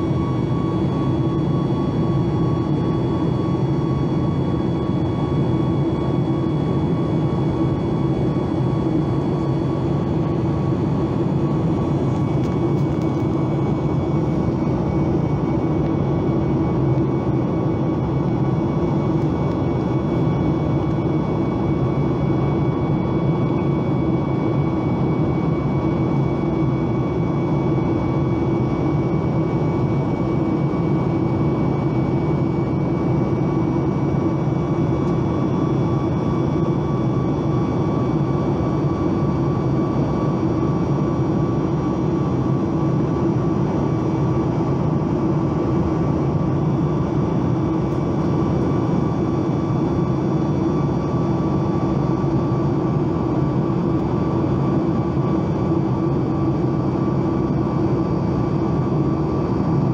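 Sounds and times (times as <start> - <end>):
jet engine drone: 0.0 - 59.9
thin steady whine tones: 0.0 - 59.9.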